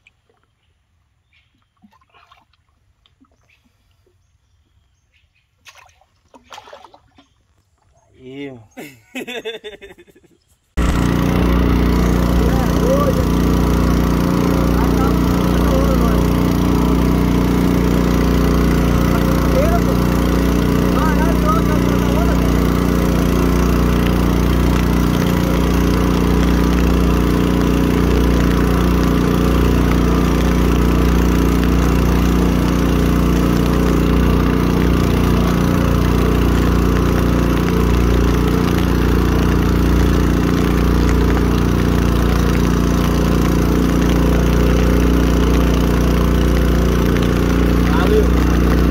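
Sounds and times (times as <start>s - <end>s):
small boat engine drone: 10.8s - 48.9s.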